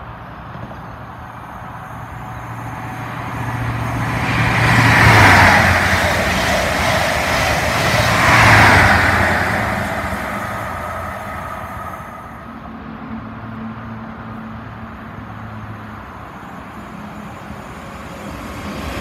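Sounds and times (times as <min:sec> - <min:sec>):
diesel train engine passing: 0:00.0 - 0:19.0
wheel-on-rail noise: 0:00.3 - 0:12.6.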